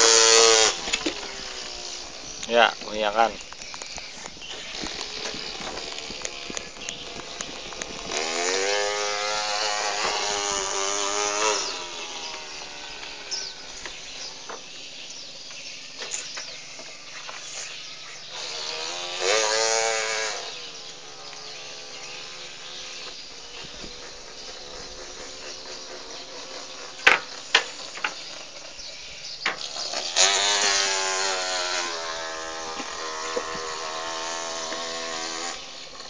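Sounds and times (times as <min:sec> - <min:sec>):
child imitating a chainsaw: 0:00.0 - 0:02.6, 0:04.7 - 0:13.8, 0:18.3 - 0:22.7, 0:29.6 - 0:35.8
insects chirping: 0:00.0 - 0:36.0.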